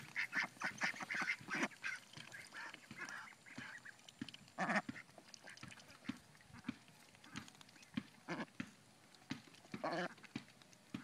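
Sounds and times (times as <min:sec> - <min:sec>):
young ducks calling: 0:00.0 - 0:08.7.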